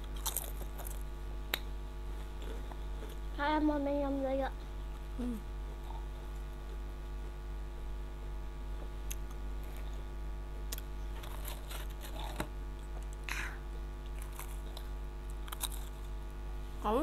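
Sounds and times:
crisps crunching: 0.0s - 3.3s, 10.7s - 13.4s, 14.0s - 16.2s
electrical hum: 0.0s - 17.0s.

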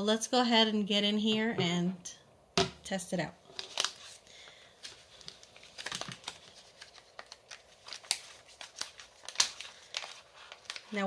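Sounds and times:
plastic pouch crinkling: 3.4s - 11.0s.

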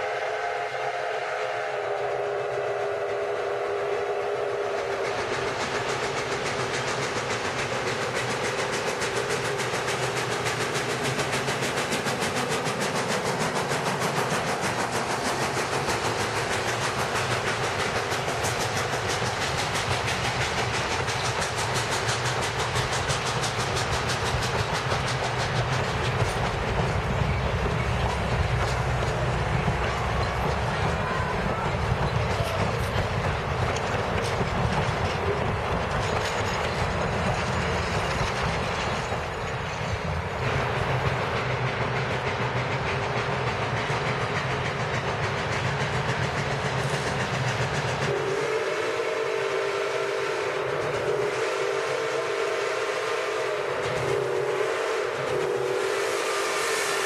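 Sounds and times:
steam whistle chord: 0.0s - 4.8s, 48.1s - 57.0s
steam locomotive chuffing: 0.0s - 57.0s
train wheels rolling on rails: 0.0s - 57.0s.

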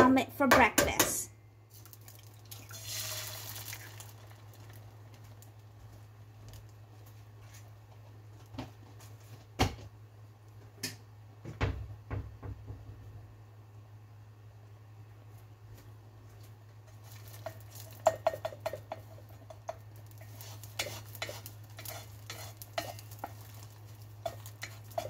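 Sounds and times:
low steady hum: 0.0s - 25.0s
egg sizzling in a skillet: 1.7s - 6.7s, 16.9s - 25.0s.

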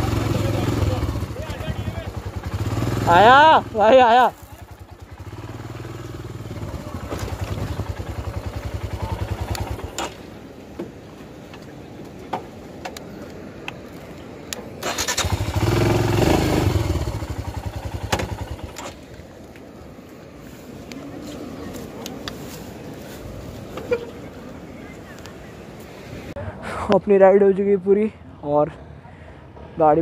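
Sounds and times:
motorcycle engine thumping: 4.7s - 11.0s, 16.8s - 19.2s.

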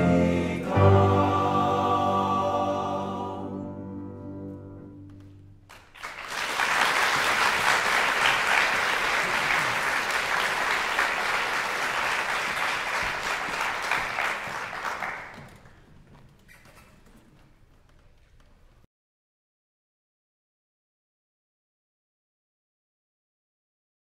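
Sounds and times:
men's chorus holding a chord: 0.0s - 3.9s
audience applauding: 5.6s - 16.0s.

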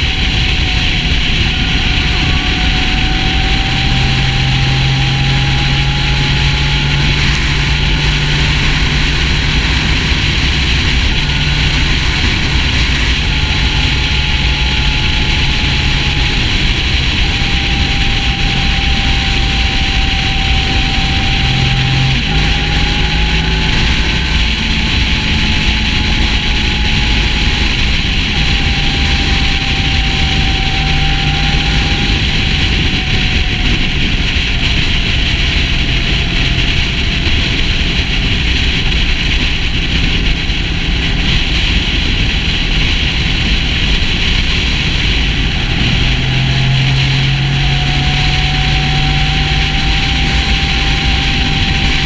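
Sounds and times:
motorcycle engine drone: 0.0s - 52.0s
wind noise rushing: 0.0s - 52.0s.

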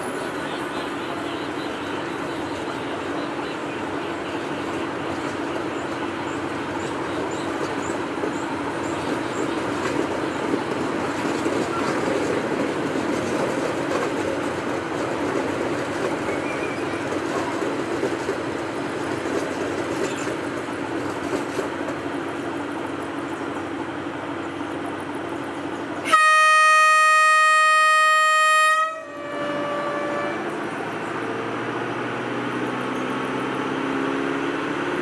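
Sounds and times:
train wheels rumbling on rails: 0.0s - 35.0s
clacks over rail joints: 4.4s - 23.7s.

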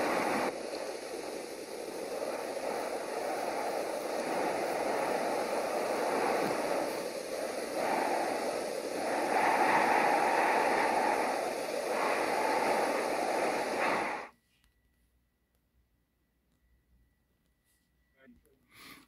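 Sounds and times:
rushing noise: 0.0s - 14.3s.

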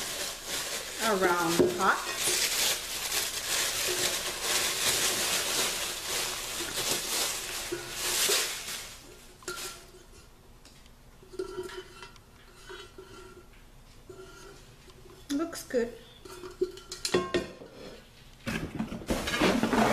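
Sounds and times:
plastic packaging crinkling: 0.0s - 9.8s.

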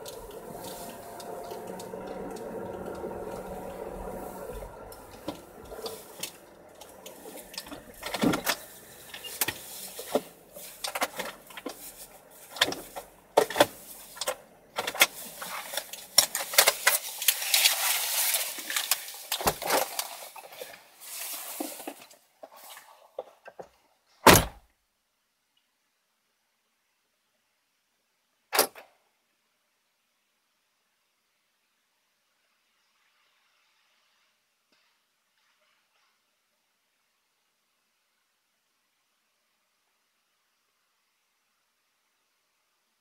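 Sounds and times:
rustling and knocks of handling: 0.0s - 23.8s.

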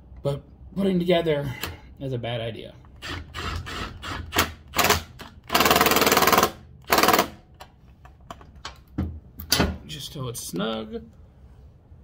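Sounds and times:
power tool rattling: 3.0s - 7.4s
tool handling clicks and knocks: 7.5s - 9.8s.

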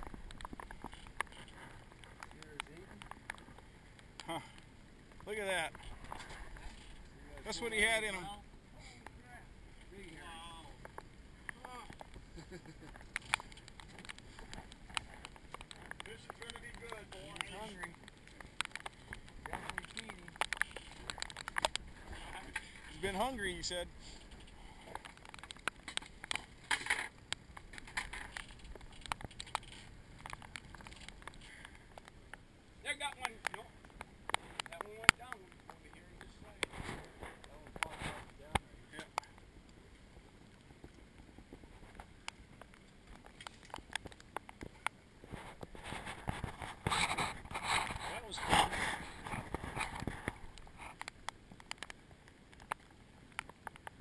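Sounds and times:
low rumble of wind: 0.0s - 54.0s
light ticks and taps: 12.8s - 32.4s, 33.0s - 36.7s, 40.5s - 45.0s, 49.8s - 54.0s.

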